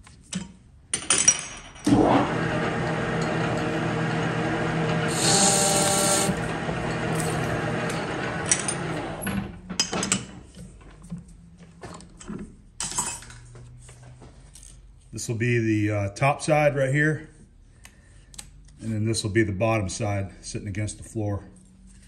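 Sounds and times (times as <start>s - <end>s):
metal lathe running: 1.9s - 9.4s.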